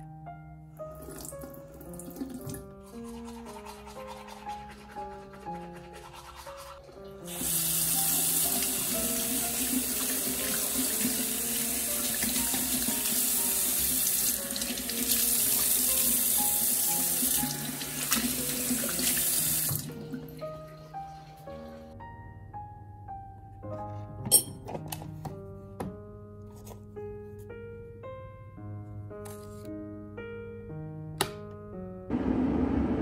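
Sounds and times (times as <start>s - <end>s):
soft piano music: 0.0s - 33.0s
tap water running into sink: 7.2s - 20.3s.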